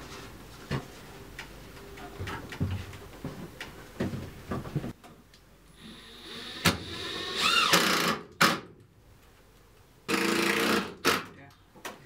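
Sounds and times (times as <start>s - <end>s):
cordless drill driving screws: 5.9s - 8.2s.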